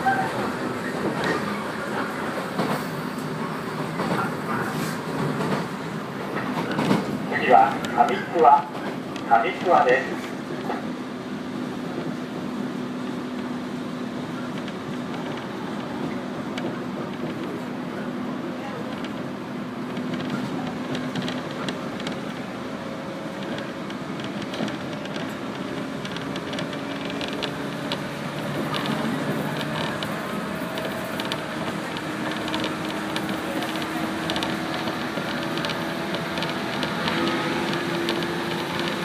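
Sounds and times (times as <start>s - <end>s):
train interior rumble: 0.0s - 39.0s
train motor hum: 0.0s - 39.0s
creaks and rattles of car body: 23.4s - 39.0s.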